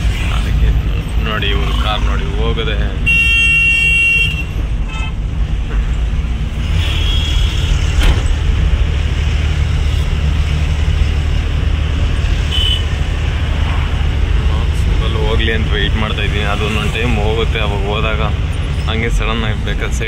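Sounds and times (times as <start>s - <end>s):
vehicle horn honking: 3.0s - 5.2s, 6.7s - 7.9s, 12.5s - 12.9s.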